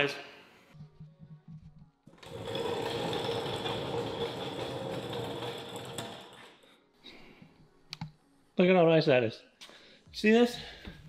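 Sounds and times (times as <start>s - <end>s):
casters rattling on concrete floor: 2.1s - 6.6s.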